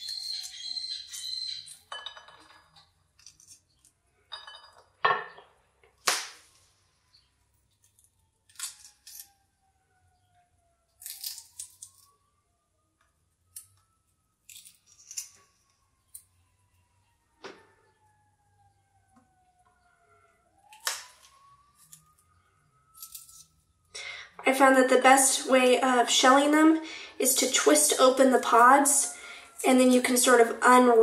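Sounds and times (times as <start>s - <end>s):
pea pods snapping and tearing: 7.8s - 9.3s, 10.9s - 12.1s, 14.4s - 15.5s, 20.7s - 22.3s, 23.0s - 23.5s.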